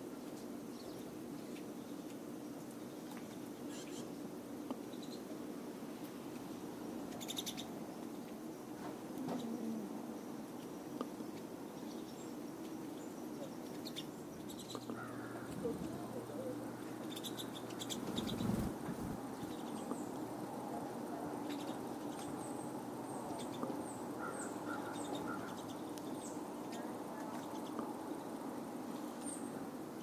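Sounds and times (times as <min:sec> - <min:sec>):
birds twittering: 0:06.9 - 0:20.6, 0:21.4 - 0:29.6
wings fluttering: 0:14.9 - 0:19.7.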